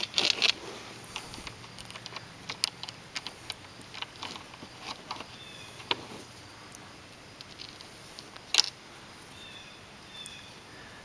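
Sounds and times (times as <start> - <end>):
rope clicking through plastic cleat: 0.0 - 6.3
rope rustling: 0.0 - 9.4.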